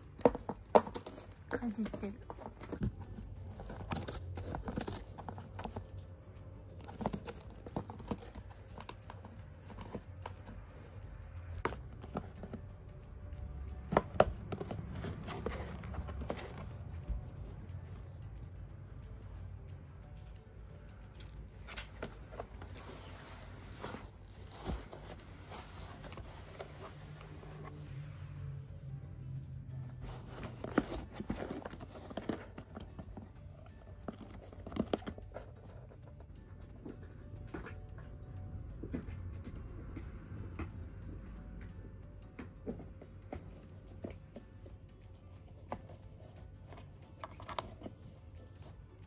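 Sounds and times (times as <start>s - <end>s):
kittens scratching cardboard: 0.2s - 5.9s, 29.9s - 36.1s.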